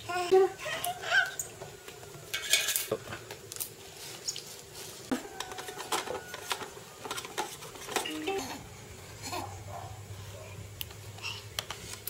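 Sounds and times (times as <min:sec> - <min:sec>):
plastic toys clattering on tiles: 0:05.4 - 0:08.4.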